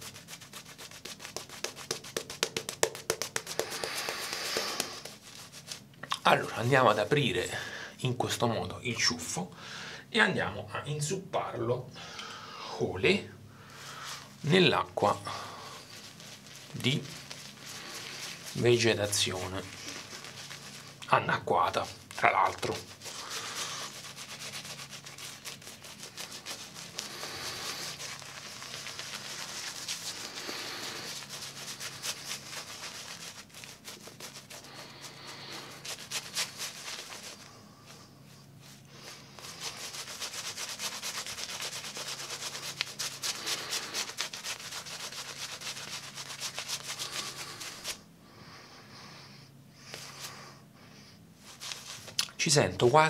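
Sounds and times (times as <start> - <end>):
shaving brush scrubbing soap: 0.0 - 7.4, 14.0 - 38.0, 38.6 - 48.0, 51.4 - 52.3.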